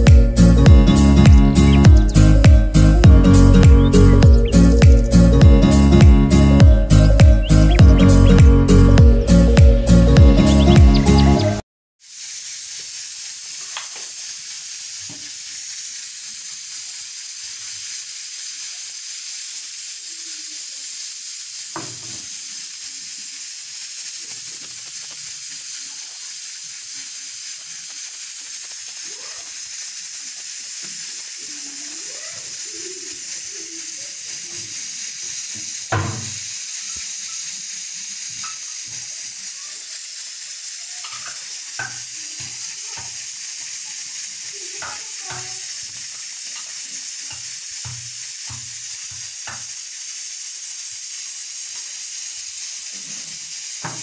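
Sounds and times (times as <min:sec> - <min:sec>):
oil sizzling in a wok: 0:00.0 - 0:54.0.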